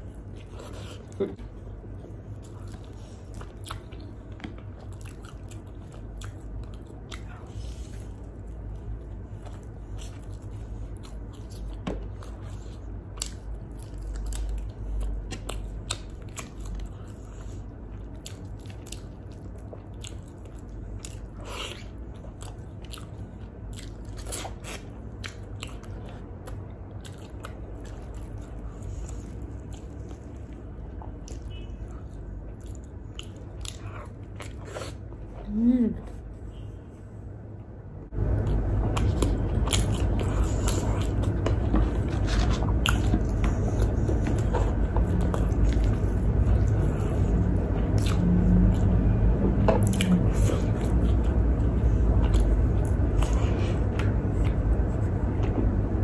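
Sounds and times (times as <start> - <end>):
person chewing food: 0.0 - 37.4, 38.1 - 56.0
low steady hum: 0.0 - 56.0
food crunching: 38.2 - 55.8.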